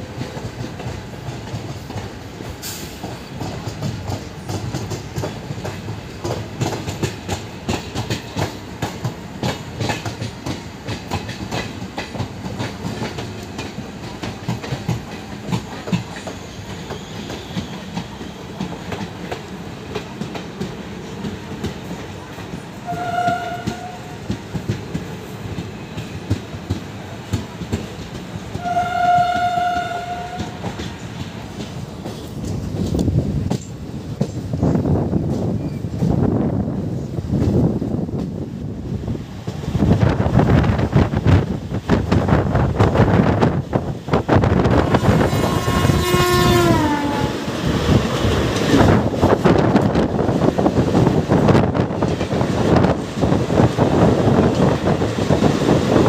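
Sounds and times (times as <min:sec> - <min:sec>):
train wheels clattering over rail joints: 0:00.0 - 0:36.3, 0:39.4 - 0:56.0
train horn blast: 0:22.8 - 0:24.2, 0:28.5 - 0:30.8, 0:44.8 - 0:47.6.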